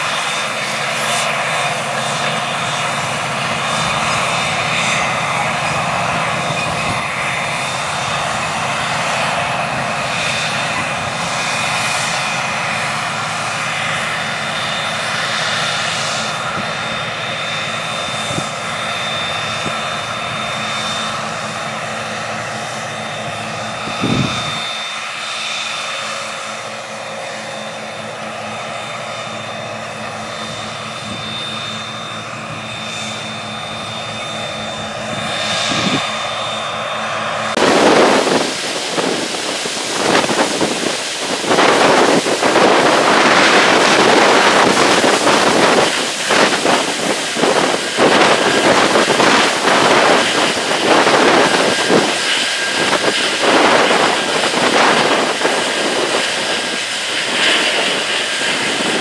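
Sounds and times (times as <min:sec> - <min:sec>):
tractor engine drone with whine: 0:00.0 - 0:59.0.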